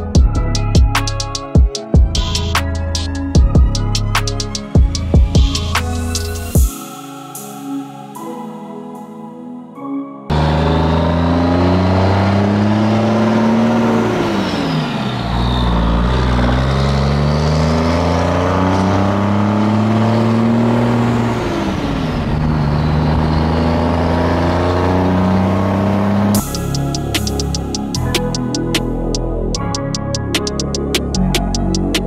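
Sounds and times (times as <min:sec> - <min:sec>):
diesel pickup engine accelerating: 0:10.3 - 0:32.0
high turbo whistle: 0:25.1 - 0:28.9.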